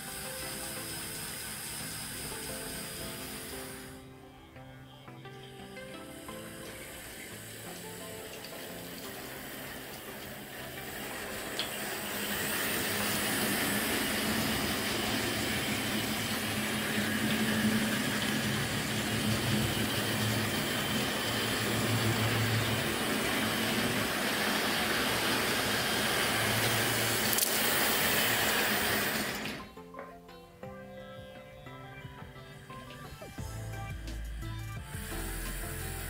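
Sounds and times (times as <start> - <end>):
faint varying hum: 0.0 - 36.0
model train motors and wheels rumbling: 10.9 - 29.6.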